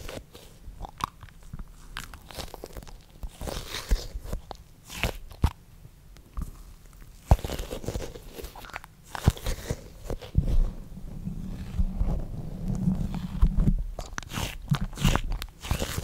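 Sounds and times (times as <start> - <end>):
foam toy crunchy scrunches: 1.7 - 5.6, 7.2 - 10.6, 12.8 - 16.0.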